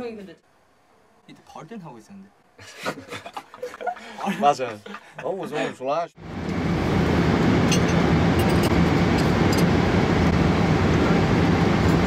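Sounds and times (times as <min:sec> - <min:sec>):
constant low hum: 0:00.0 - 0:12.0
airliner cabin noise: 0:06.2 - 0:12.0.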